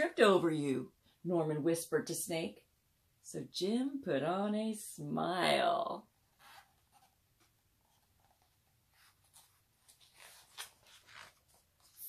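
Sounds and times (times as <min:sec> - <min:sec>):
paper page turning: 0:06.4 - 0:12.0.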